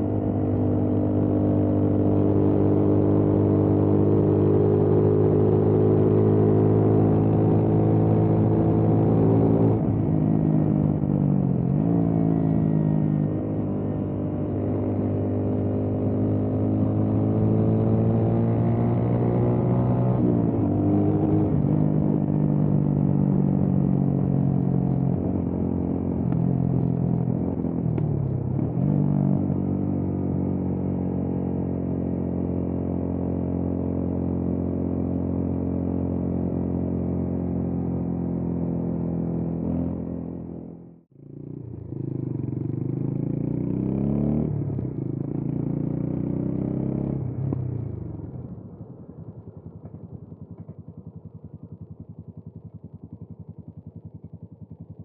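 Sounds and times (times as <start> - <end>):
motorcycle engine running: 19.9 - 55.0.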